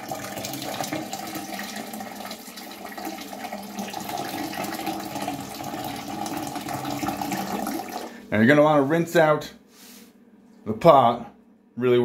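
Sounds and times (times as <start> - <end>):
liquid pouring into toilet bowl: 0.0 - 8.3.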